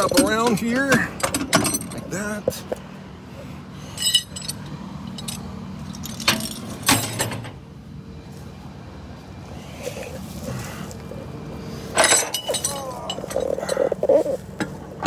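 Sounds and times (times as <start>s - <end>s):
metal chain clinking and rattling: 0.0s - 2.2s, 3.8s - 7.5s, 11.9s - 14.4s
sharp metallic clanks: 0.0s - 2.2s, 3.9s - 7.6s, 11.9s - 13.8s
low engine hum: 0.0s - 15.0s.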